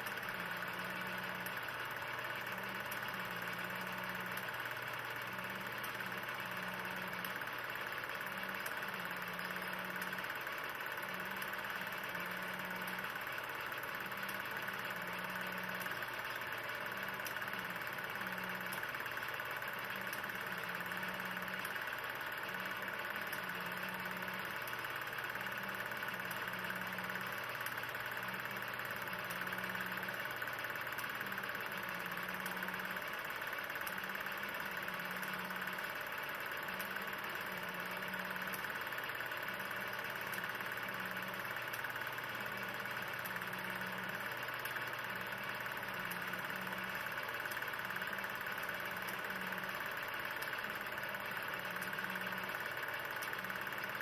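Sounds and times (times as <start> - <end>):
film projector whirring: 0.0 - 54.0.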